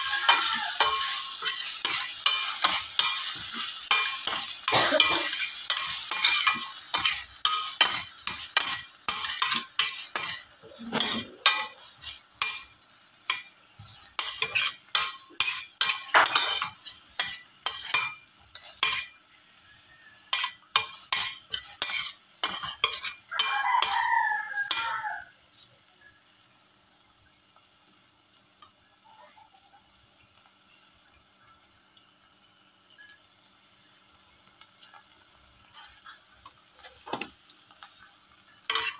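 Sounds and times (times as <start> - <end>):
utensil scraping frying pan: 0.0 - 19.2, 20.0 - 25.2, 35.6 - 38.9
aromatics sizzling: 0.0 - 38.9.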